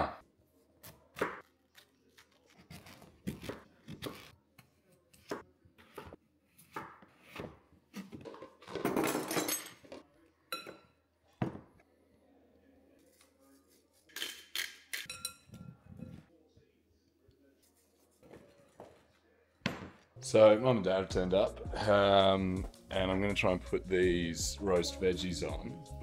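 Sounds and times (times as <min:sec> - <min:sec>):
knife chopping on wooden board: 0:02.6 - 0:08.2.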